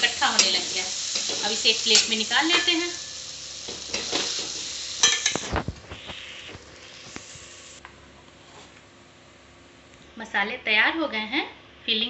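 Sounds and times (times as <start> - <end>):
light sizzle: 0.0 - 8.0.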